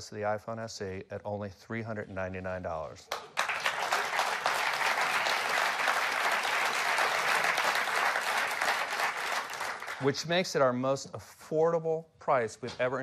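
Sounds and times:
audience applauding: 0:03.1 - 0:10.2.

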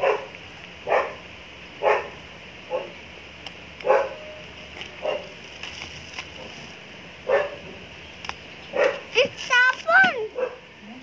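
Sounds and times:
dog barking: 0:00.0 - 0:01.2, 0:01.8 - 0:03.0, 0:03.8 - 0:04.4, 0:05.0 - 0:05.3, 0:07.2 - 0:07.7, 0:08.7 - 0:09.1, 0:10.3 - 0:10.7.

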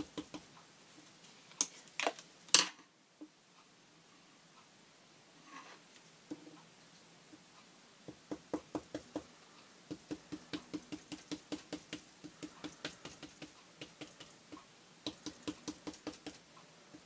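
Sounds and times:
paintbrush tapping through stencil: 0:09.9 - 0:16.4.

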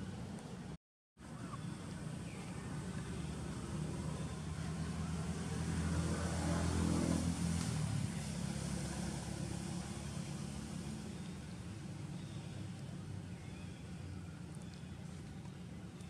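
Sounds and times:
vehicle engine passing by: 0:02.6 - 0:13.2.

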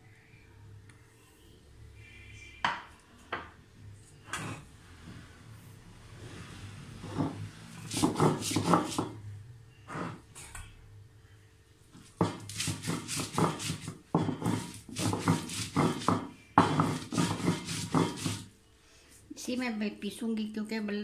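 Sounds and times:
stone roller grinding on slab: 0:07.0 - 0:09.1, 0:09.9 - 0:10.2, 0:12.2 - 0:18.5.

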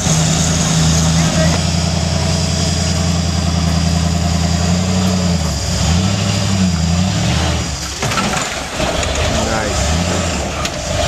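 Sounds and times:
car engine at low revs: 0:00.0 - 0:11.0.

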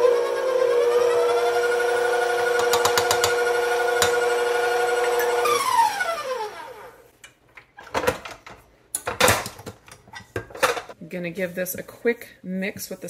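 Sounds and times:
stand mixer motor whine: 0:00.0 - 0:07.0
whisk knocking: 0:02.2 - 0:05.2.

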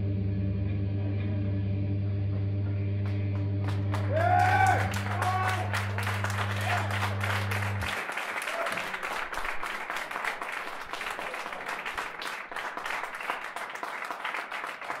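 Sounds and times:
audience applauding: 0:03.0 - 0:15.0.

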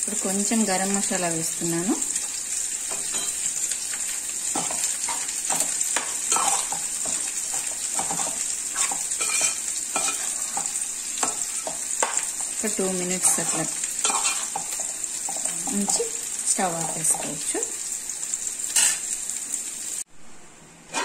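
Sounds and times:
curry sizzling: 0:00.0 - 0:20.1
metal spoon scraping a pot: 0:04.6 - 0:12.2, 0:13.2 - 0:16.1.

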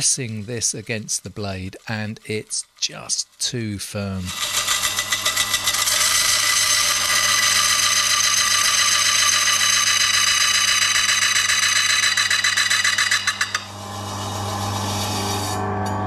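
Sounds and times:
slicer motor humming: 0:04.3 - 0:15.5.

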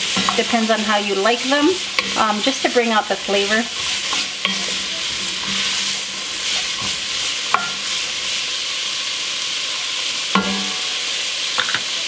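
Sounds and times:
wooden spoon stirring pot: 0:00.0 - 0:08.5
vegetables sizzling in oil: 0:00.0 - 0:12.0.

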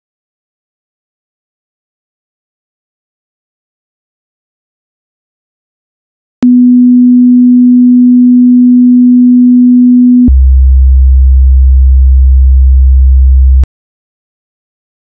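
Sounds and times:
steady pure test tone: 0:06.4 - 0:10.3.

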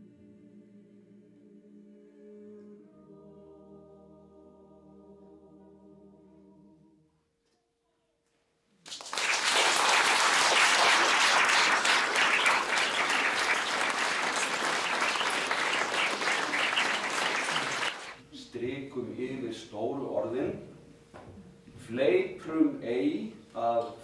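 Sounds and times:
choir singing a held chord: 0:00.0 - 0:07.0
audience applause: 0:08.9 - 0:18.2.

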